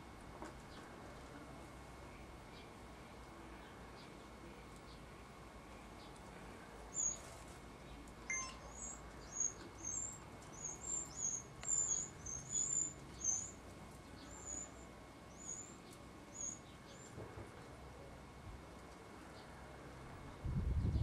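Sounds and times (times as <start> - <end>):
small bird chirping: 8.3 - 17.2.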